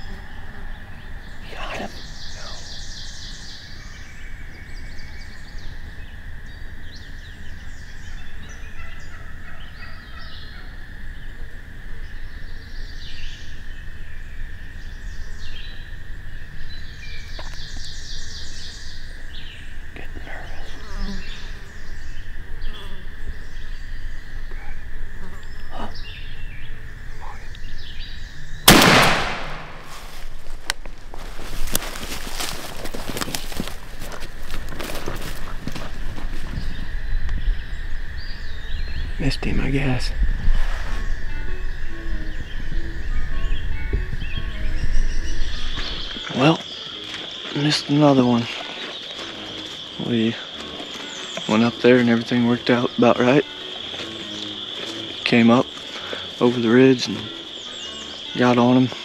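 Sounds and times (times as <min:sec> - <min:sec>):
birds trilling: 0:00.0 - 0:59.0
shotgun shot: 0:28.7 - 0:29.9.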